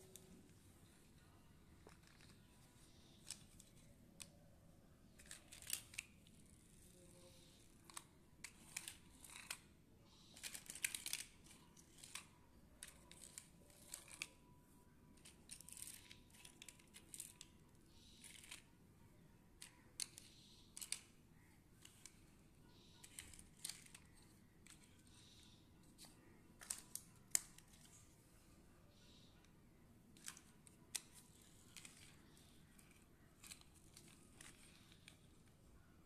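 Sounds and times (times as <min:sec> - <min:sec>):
plastic toy cars clicking: 0:01.8 - 0:04.4, 0:05.1 - 0:14.5, 0:15.1 - 0:18.8, 0:19.5 - 0:28.1, 0:29.4 - 0:35.6.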